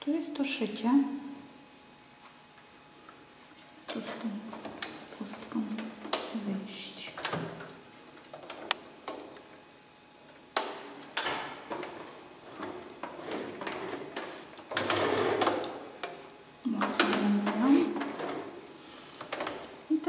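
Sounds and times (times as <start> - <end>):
sewing machine stitching: 11.8 - 15.7.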